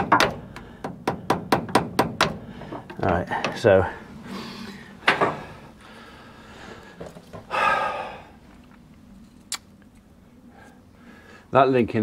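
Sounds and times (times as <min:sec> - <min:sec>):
man's sharp breath: 0:04.2 - 0:08.4.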